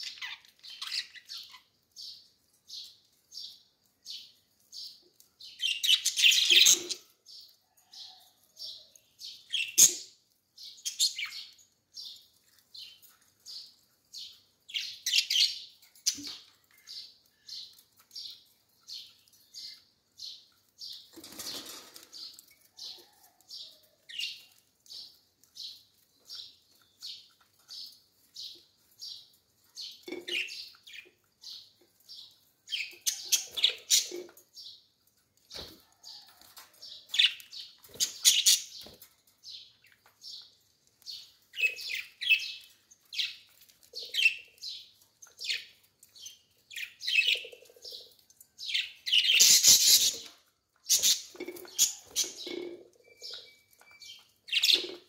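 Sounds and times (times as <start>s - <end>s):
budgerigars chirping: 48.8s - 50.3s.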